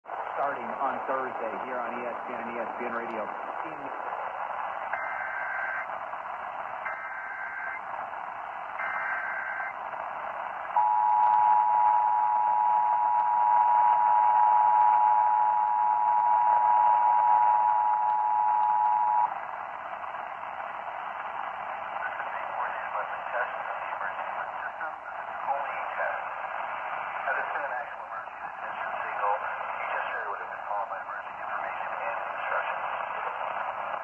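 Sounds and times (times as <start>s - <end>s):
radio static hiss: 0.1s - 34.0s.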